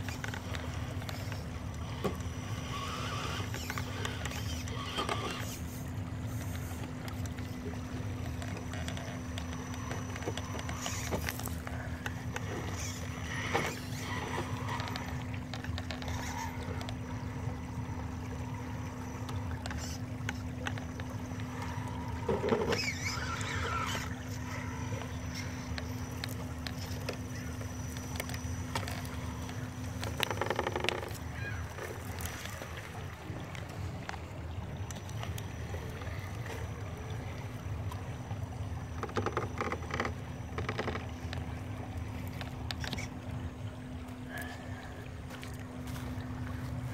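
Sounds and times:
tyre and drivetrain noise: 0:00.0 - 0:17.9, 0:45.3 - 0:46.9
toy car motor hum: 0:00.0 - 0:32.9, 0:42.5 - 0:43.1
flowing water: 0:00.0 - 0:46.9.

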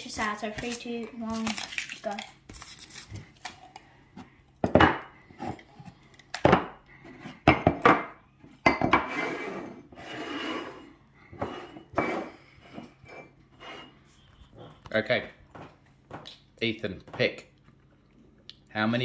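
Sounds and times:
ceramic mugs clunking on wood: 0:04.6 - 0:05.1, 0:07.4 - 0:09.1
mugs scraping across wood: 0:08.9 - 0:14.9.

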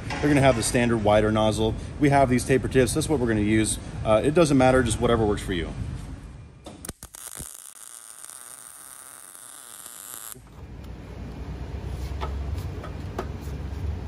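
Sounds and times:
welding arc buzzing crackle: 0:06.7 - 0:10.5
welding hiss: 0:06.9 - 0:10.4.

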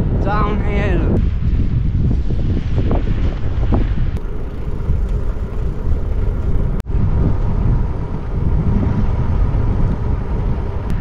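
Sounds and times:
wind buffeting microphone: 0:00.0 - 0:11.0
faint steady hum: 0:04.2 - 0:11.0.

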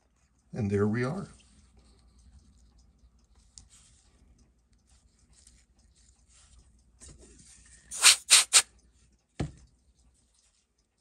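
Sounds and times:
scratching watch bezel: 0:07.9 - 0:08.6.

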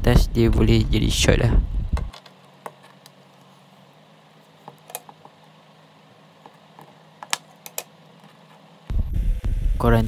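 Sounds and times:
faint low hum: 0:00.0 - 0:10.0
electrical tape clicks and taps: 0:01.5 - 0:03.2, 0:04.6 - 0:05.4, 0:06.4 - 0:08.5.

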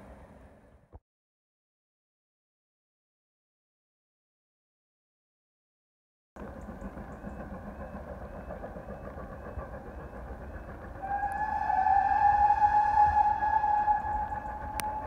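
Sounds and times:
steam locomotive whistle: 0:11.0 - 0:15.0.

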